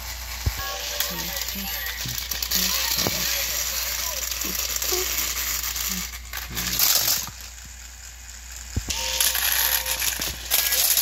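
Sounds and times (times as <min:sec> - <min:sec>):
toy trains rattling: 0:00.0 - 0:11.0.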